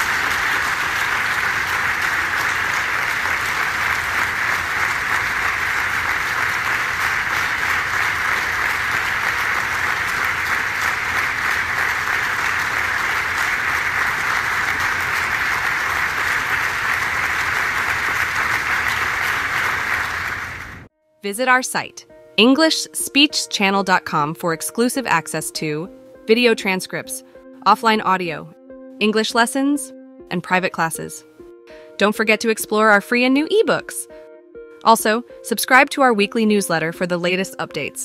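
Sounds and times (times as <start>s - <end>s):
audience applauding: 0.0s - 20.9s.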